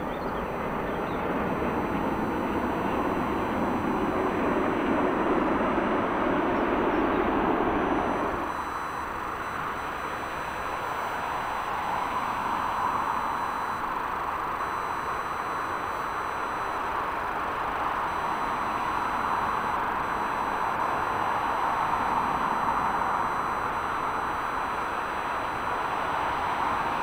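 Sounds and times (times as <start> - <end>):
jet engine rush: 0.0 - 14.7.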